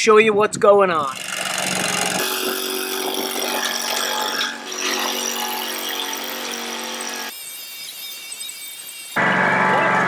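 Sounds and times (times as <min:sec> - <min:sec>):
garden tractor engine: 0:01.0 - 0:08.4
mower cutting brush: 0:01.1 - 0:09.3.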